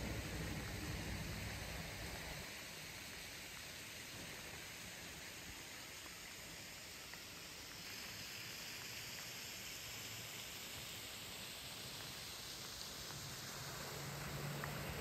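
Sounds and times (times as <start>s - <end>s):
car driving on wet road: 0.0s - 2.4s, 12.9s - 15.0s
rainfall hissing: 0.0s - 15.0s.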